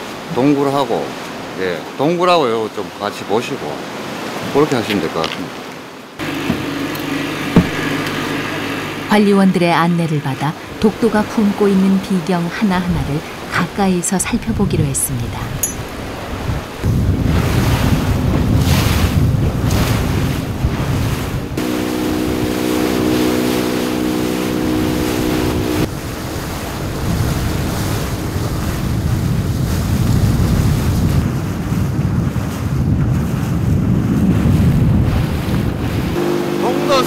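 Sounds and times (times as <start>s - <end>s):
water rushing: 0.0s - 31.4s, 35.0s - 37.0s
boat motor humming: 5.8s - 32.4s, 34.2s - 37.0s
wind buffeting microphone: 10.4s - 37.0s.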